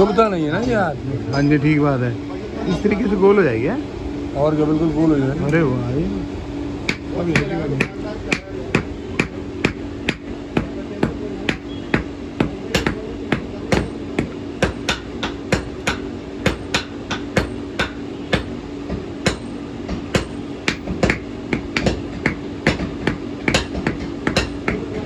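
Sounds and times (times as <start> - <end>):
hammer striking iron on anvil: 6.9 - 25.0.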